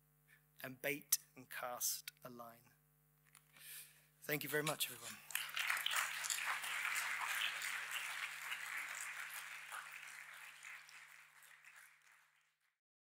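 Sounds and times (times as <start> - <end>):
audience applauding: 4.8 - 12.8.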